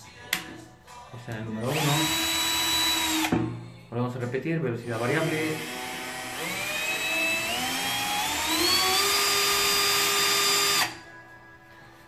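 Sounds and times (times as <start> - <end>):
cordless drill motor whine: 1.6 - 3.3, 4.9 - 11.0.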